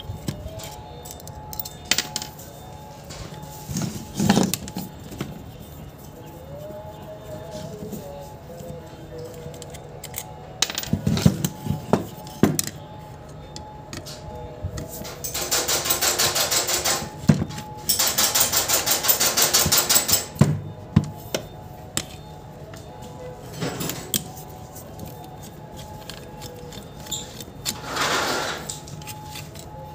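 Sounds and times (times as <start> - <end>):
screwdriver and metal parts clicking: 0.0 - 5.7, 8.6 - 12.8, 21.3 - 22.8, 23.5 - 29.9
faint background music: 0.0 - 29.9.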